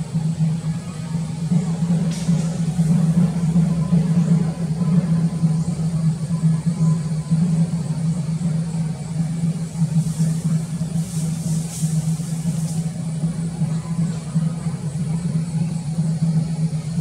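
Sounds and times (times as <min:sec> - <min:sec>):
high hissing: 0:09.8 - 0:13.1.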